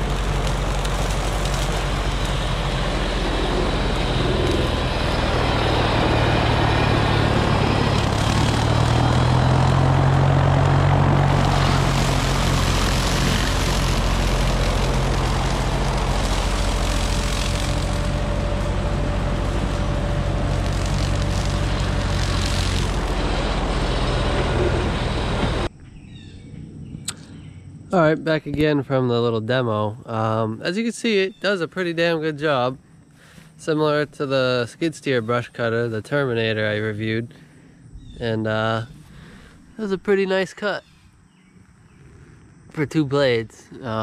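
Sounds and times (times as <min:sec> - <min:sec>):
hydraulic brush mower rushing: 0:00.0 - 0:25.7
diesel engine drone: 0:00.0 - 0:30.8, 0:31.5 - 0:44.0.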